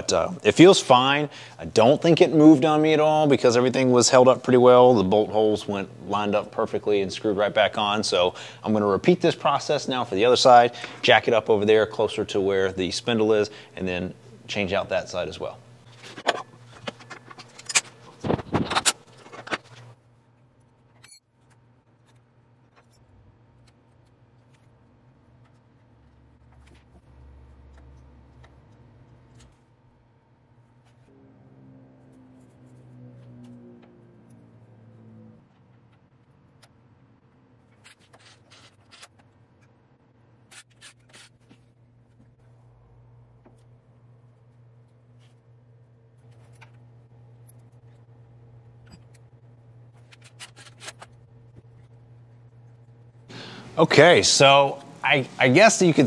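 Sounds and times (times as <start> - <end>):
low steady hum: 0.0 - 56.0
handling clicks and scrapes: 15.8 - 27.1, 37.6 - 39.8, 40.4 - 42.2, 48.8 - 52.8.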